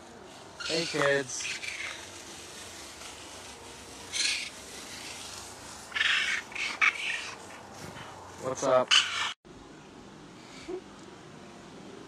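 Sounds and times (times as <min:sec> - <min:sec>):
feet crunching dry leaves: 0:00.0 - 0:09.3.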